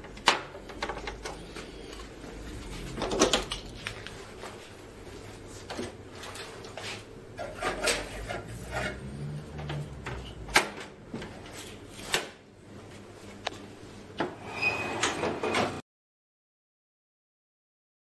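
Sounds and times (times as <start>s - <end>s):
low hum: 0.0s - 6.3s.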